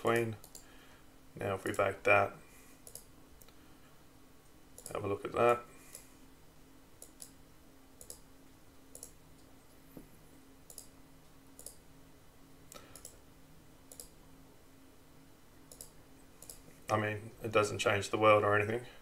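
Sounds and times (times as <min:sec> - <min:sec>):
faint steady hum: 0:00.0 - 0:19.0
computer mouse clicks: 0:00.1 - 0:00.7, 0:02.8 - 0:03.6, 0:04.8 - 0:05.0, 0:05.9 - 0:06.1, 0:07.0 - 0:07.4, 0:08.0 - 0:08.3, 0:08.9 - 0:09.5, 0:10.7 - 0:11.0, 0:11.6 - 0:11.8, 0:12.7 - 0:13.2, 0:13.9 - 0:14.2, 0:15.7 - 0:16.6.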